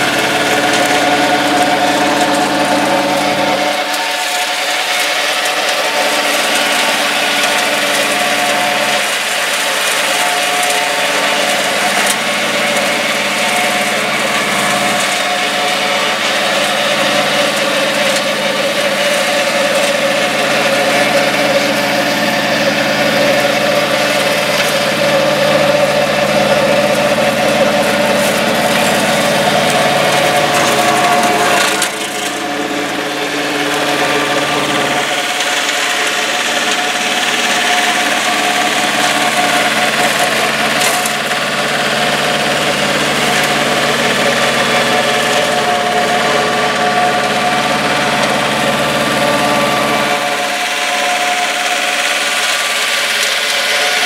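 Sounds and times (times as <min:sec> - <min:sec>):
diesel engine running under load: 0:00.0 - 0:54.0
flail mower whirring: 0:00.0 - 0:54.0.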